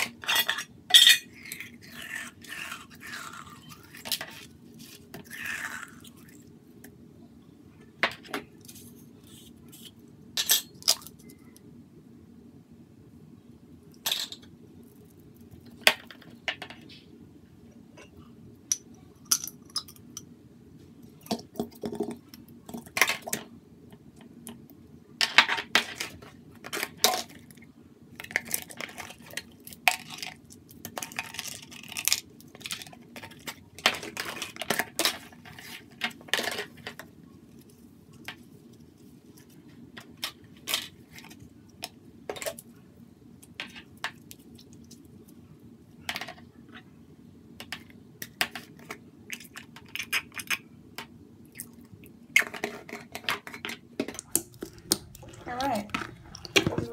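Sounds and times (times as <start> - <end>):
plastic tubs clicking and scraping: 52.4 - 56.9.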